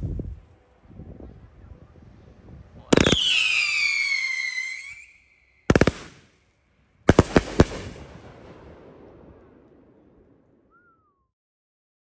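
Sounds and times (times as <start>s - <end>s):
firework whistle falling in pitch: 2.9s - 5.8s
firework volleys of shots: 2.9s - 6.4s, 7.1s - 9.6s.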